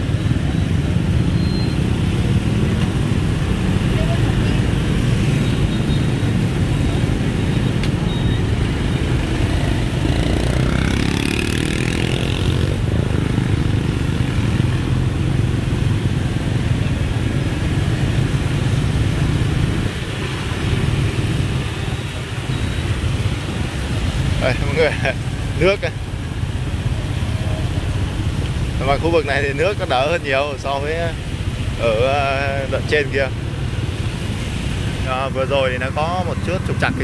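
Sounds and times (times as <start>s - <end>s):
motorbike and scooter traffic: 0.0s - 37.0s
engine speeding up: 9.2s - 14.4s.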